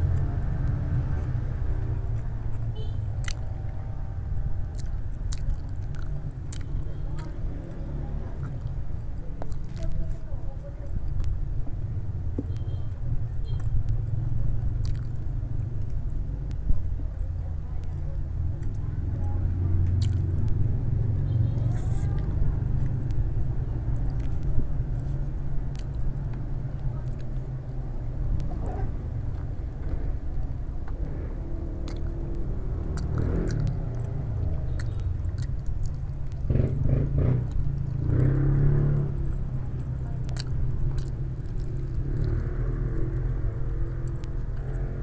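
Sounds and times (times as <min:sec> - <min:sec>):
wet mouth clicks: 0:02.1 - 0:03.8, 0:04.7 - 0:07.7, 0:14.8 - 0:16.6, 0:19.8 - 0:20.7, 0:25.6 - 0:31.0, 0:31.6 - 0:38.6, 0:39.4 - 0:45.0
person chewing food: 0:02.1 - 0:10.1, 0:14.7 - 0:16.0, 0:19.8 - 0:20.7, 0:21.8 - 0:27.7, 0:29.3 - 0:45.0
steady low rumble: 0:13.0 - 0:45.0.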